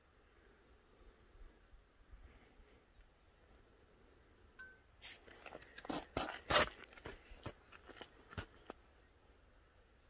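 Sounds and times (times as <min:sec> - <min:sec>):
metallic clicks and scrapes: 0:05.0 - 0:07.0.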